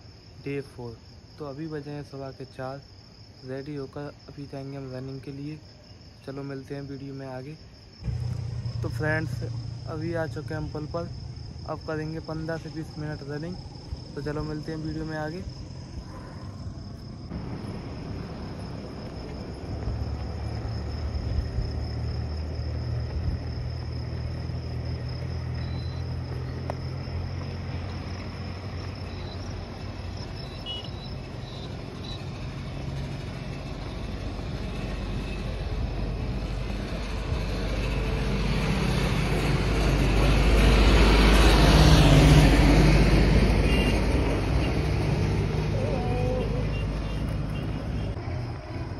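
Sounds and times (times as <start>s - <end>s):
insects chirping: 0.0s - 48.9s
low hum: 8.0s - 11.8s
vehicle passing by: 8.0s - 30.4s, 31.1s - 48.9s.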